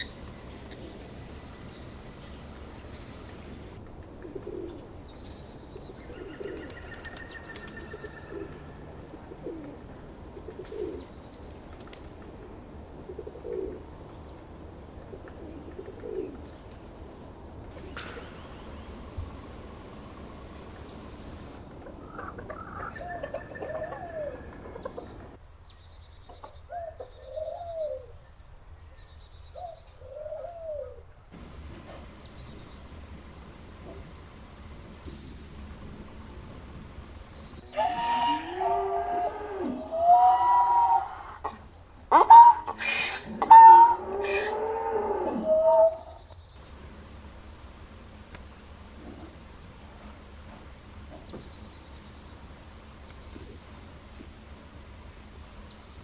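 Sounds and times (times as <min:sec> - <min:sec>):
bird cooing: 0:00.0 - 0:05.0, 0:05.7 - 0:11.1, 0:11.9 - 0:14.0, 0:15.0 - 0:16.6, 0:17.9 - 0:25.4, 0:26.7 - 0:28.2, 0:29.6 - 0:31.0, 0:37.7 - 0:46.2
rising and falling bird calls: 0:00.0 - 0:25.7, 0:28.8 - 0:53.8.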